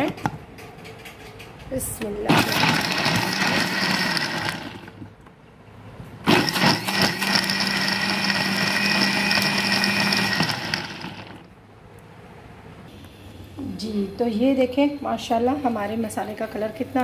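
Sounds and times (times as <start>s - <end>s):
electric mixer grinder motor: 2.3s - 5.1s, 6.3s - 11.5s.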